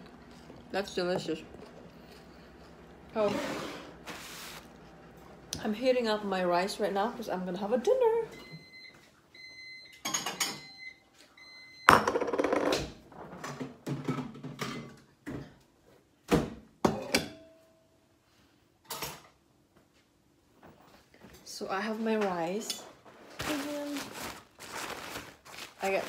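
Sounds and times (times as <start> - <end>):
microwave oven beeping: 8.2 - 12.2
dishes knocking and clinking: 13.5 - 15.5.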